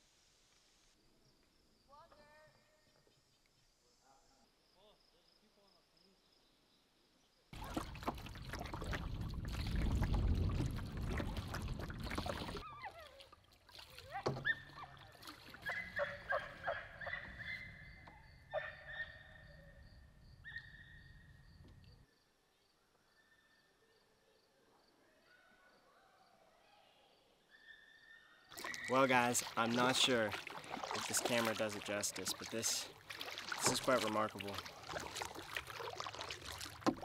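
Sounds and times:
paddle splashes and drips: 7.6 - 18.2, 28.5 - 37.0
light knocks on canoe: 36.8 - 37.0.

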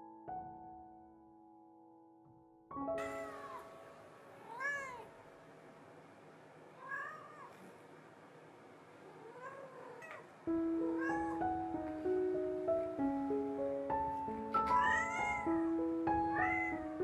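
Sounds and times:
cat meowing: 4.4 - 5.1, 6.8 - 7.7, 9.1 - 10.3, 10.9 - 11.4, 14.6 - 17.0.

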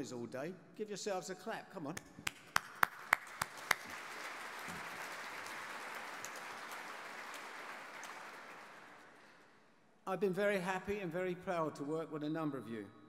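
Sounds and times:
sharp claps close to microphone: 1.9 - 9.5
audience applauding: 2.3 - 9.4.

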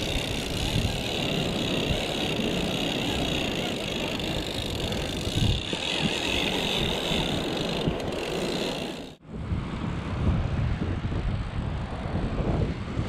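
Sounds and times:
fishing reel cranking whir: 0.0 - 9.2
wind noise: 0.0 - 13.0.

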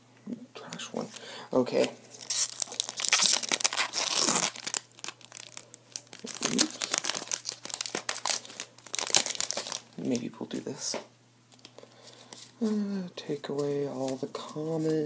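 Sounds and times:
cards rustling: 1.0 - 10.6, 13.3 - 15.0
plastic wrapper tearing and crinkling: 1.8 - 10.3.

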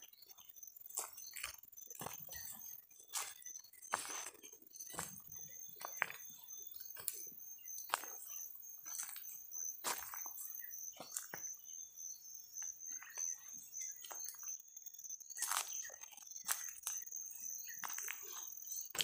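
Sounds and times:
high-pitched insect tone: 0.0 - 19.0
footsteps crunching on stubble: 0.9 - 11.7, 15.4 - 19.0.

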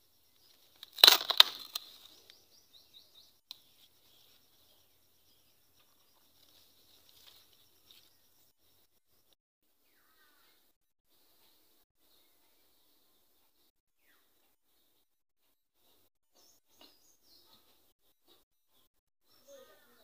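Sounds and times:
faint high chirping: 0.0 - 10.7, 18.7 - 20.0
foliage rustling and snapping: 0.4 - 2.4.

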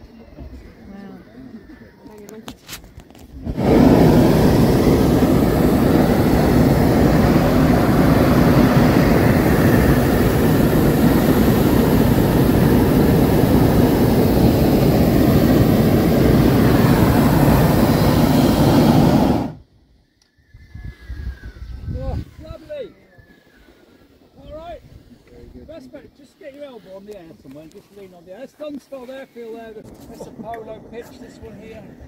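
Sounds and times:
propane burner blast: 3.1 - 19.6.

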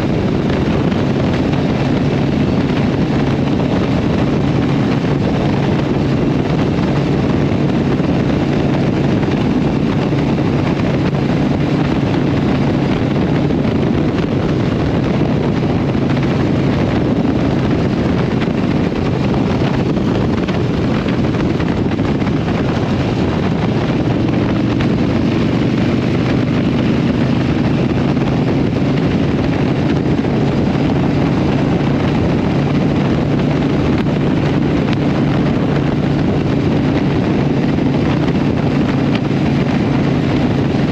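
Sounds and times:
motorcycle engine cruising: 0.0 - 40.9
wind on microphone: 0.0 - 40.9.

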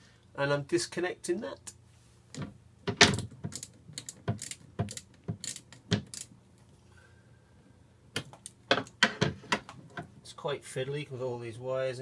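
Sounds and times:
socket wrench clicking: 3.5 - 6.3.

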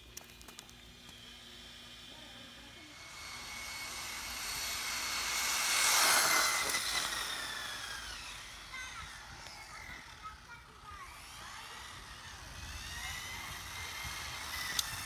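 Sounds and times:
rc car motor whine: 0.0 - 15.0.

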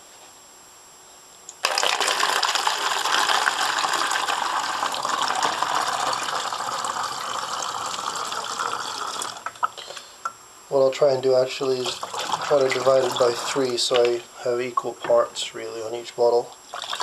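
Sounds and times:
liquid pouring into plastic bottle: 1.6 - 9.7, 11.7 - 14.2, 16.7 - 17.0
liquid splashing: 11.7 - 14.2.

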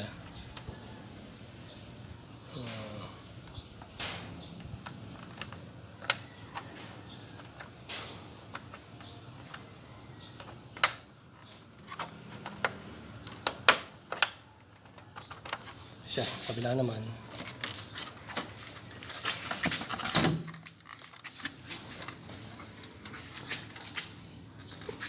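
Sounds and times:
plastic clips snapping into place: 11.8 - 15.6.

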